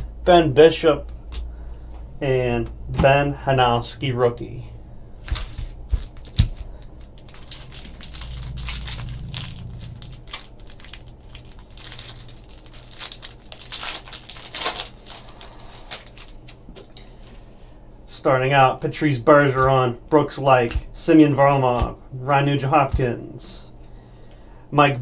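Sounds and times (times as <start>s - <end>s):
foil ripping: 5.3s - 16.6s
foil pack crinkling: 5.3s - 17.2s.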